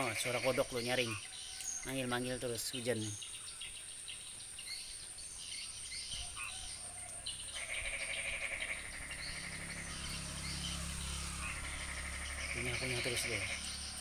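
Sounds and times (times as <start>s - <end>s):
frogs croaking: 0.0s - 14.0s
rain hissing: 8.8s - 14.0s.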